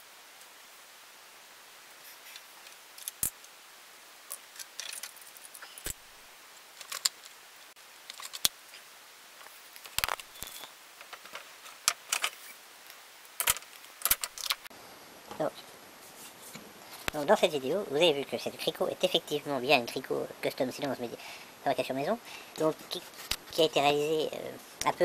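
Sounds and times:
metal tools clinking: 4.3s - 5.9s.

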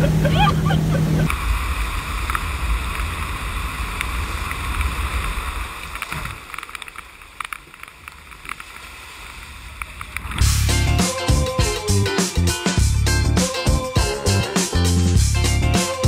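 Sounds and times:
boat engine drone: 0.0s - 4.3s
water rushing: 0.0s - 12.4s
small clicks: 5.8s - 8.9s
low rumble: 10.4s - 16.0s.

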